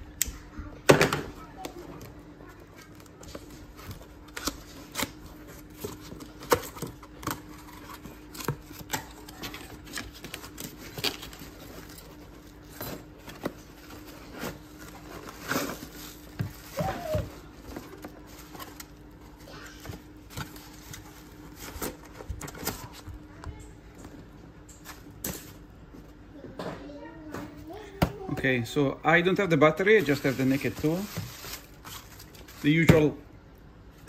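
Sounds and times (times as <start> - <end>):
cardboard box being unpacked: 2.8 - 23.0, 29.9 - 32.8.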